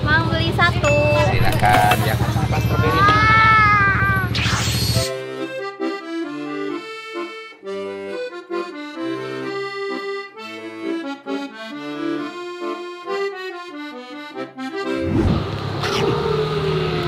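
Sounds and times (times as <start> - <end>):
accordion-like melody: 0.0 - 17.0
bass line: 0.8 - 6.3.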